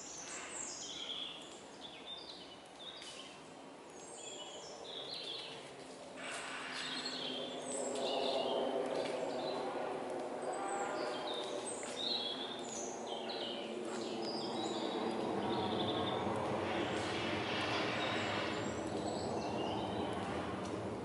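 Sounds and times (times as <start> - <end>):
small birds chirping: 0.0 - 5.7, 10.4 - 20.8
low background hum: 1.3 - 21.0.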